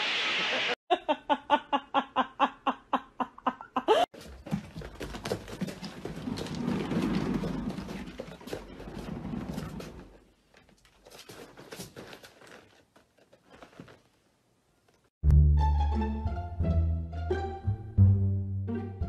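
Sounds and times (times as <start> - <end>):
rustling and handling noise: 4.2 - 15.1.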